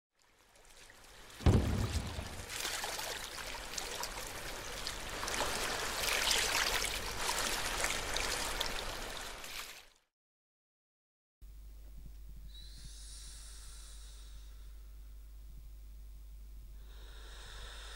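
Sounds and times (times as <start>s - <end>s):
rushing fizzing noise: 1.4s - 3.7s.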